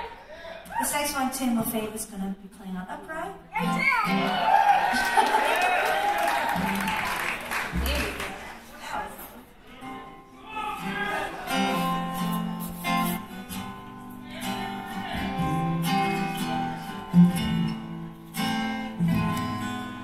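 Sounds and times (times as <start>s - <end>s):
acoustic guitar strumming: 9.8s - 20.0s.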